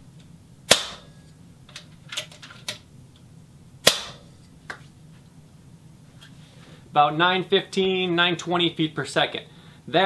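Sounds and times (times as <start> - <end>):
air rifle shots: 0.7 - 1.1, 3.8 - 4.3.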